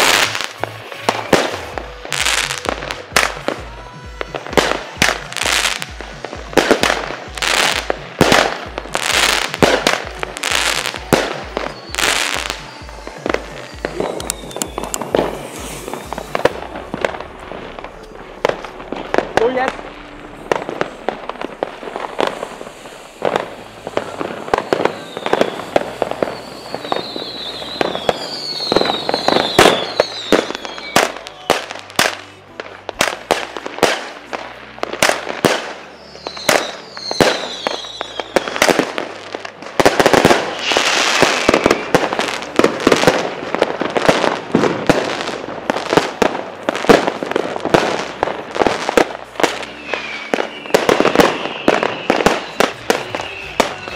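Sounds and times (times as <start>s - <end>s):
fireworks bangs and crackles: 0.0s - 53.9s
falling whistling tones: 10.9s - 17.0s, 21.9s - 31.9s, 35.7s - 38.8s, 40.4s - 42.6s, 49.5s - 53.9s.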